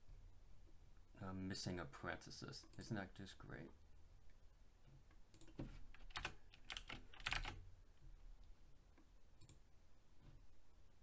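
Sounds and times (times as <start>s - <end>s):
keyboard keystrokes: 5.4s - 7.6s.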